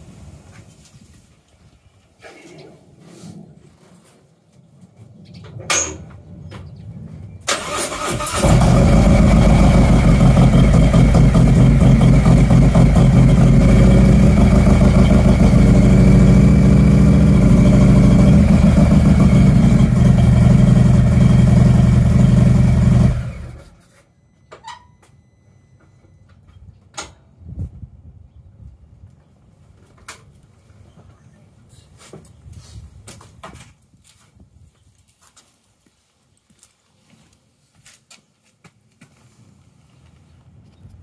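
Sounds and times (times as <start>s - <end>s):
motorcycle starter cranking: 7.5s - 12.9s
motorcycle engine idling loudly: 8.4s - 23.8s.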